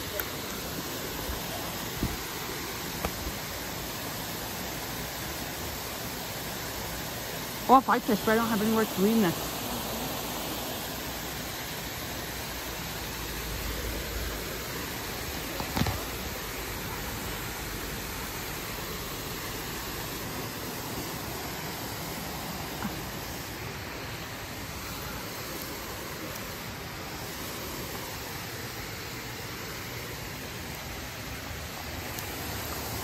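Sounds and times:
water pouring over spillway: 0:00.0 - 0:33.0.

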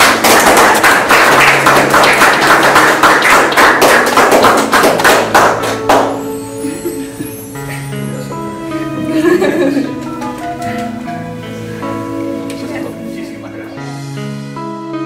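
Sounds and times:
people clapping: 0:00.0 - 0:06.3.

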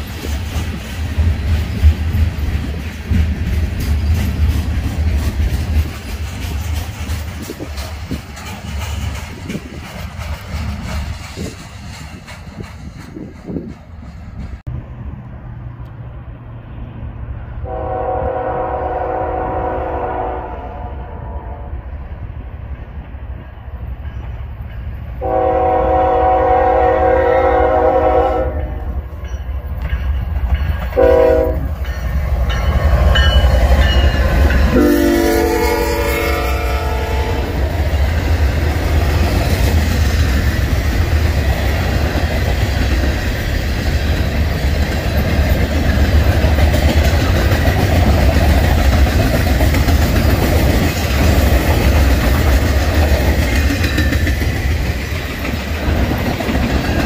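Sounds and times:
freight train rumbling on rails: 0:00.0 - 0:57.0
locomotive air horn blasts: 0:17.6 - 0:21.8, 0:25.2 - 0:28.9, 0:31.0 - 0:31.7, 0:34.7 - 0:37.6.

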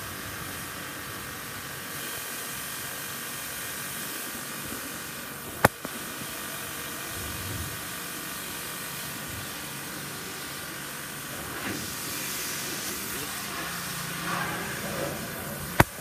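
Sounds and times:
faint motor whine: 0:00.0 - 0:16.0
pressure washer spraying water: 0:00.0 - 0:16.0.

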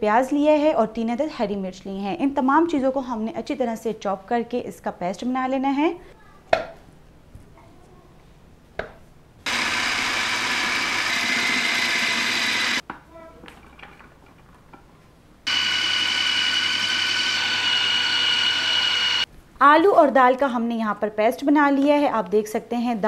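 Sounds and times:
food processor motor whining: 0:09.5 - 0:12.8, 0:15.5 - 0:19.3.

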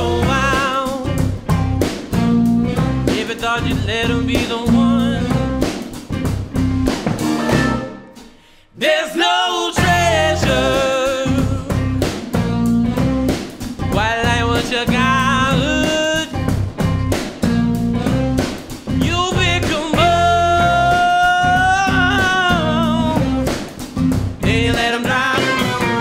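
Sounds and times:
man singing: 0:00.0 - 0:01.3, 0:03.0 - 0:05.8, 0:08.7 - 0:12.0, 0:13.8 - 0:16.5, 0:18.9 - 0:23.5, 0:24.4 - 0:26.0
live band playing: 0:00.0 - 0:08.6, 0:09.8 - 0:26.0.

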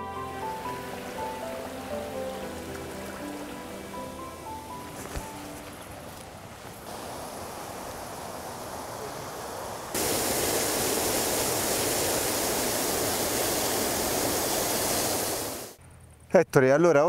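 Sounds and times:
water pouring into pool: 0:00.1 - 0:04.0, 0:09.9 - 0:15.8.

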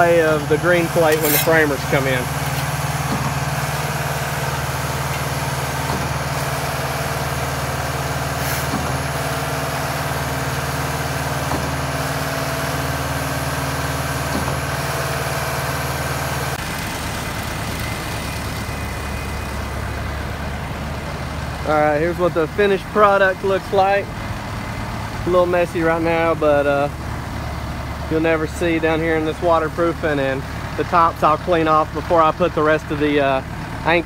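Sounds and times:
diesel engine running: 0:00.0 - 0:34.0.

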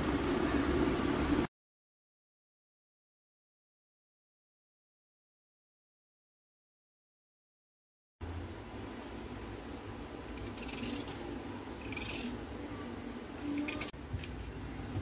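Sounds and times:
faint steady hum: 0:08.2 - 0:15.0
carrot scraping on metal grater: 0:10.3 - 0:12.4.

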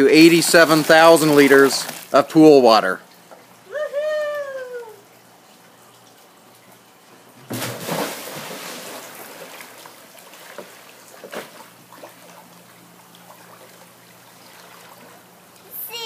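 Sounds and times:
low steady hum: 0:00.0 - 0:16.0
swimming strokes splashing: 0:00.3 - 0:02.2, 0:07.4 - 0:15.5
person splashing into pool: 0:00.7 - 0:02.2, 0:07.4 - 0:12.4.

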